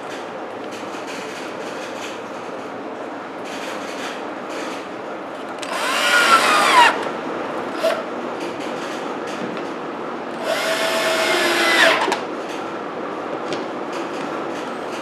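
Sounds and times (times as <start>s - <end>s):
electric drill driving into wood: 5.6s - 7.0s, 10.4s - 12.2s.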